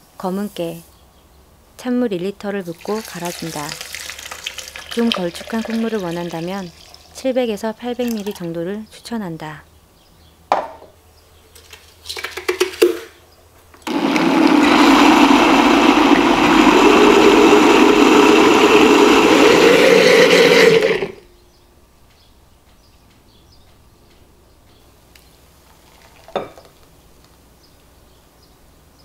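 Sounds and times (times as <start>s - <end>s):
blender grinding: 2.8s - 7.1s, 13.8s - 21.2s.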